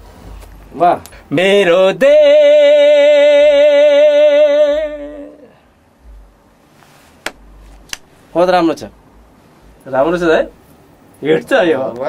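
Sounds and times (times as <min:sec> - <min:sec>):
man singing a long note: 0:01.3 - 0:05.6
sharp click: 0:07.2 - 0:08.1.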